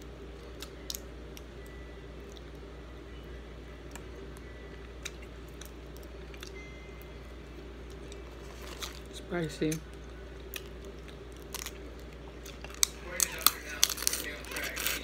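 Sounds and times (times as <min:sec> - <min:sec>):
low hum: 0:00.0 - 0:15.0
crawfish shells cracking: 0:09.7 - 0:15.0.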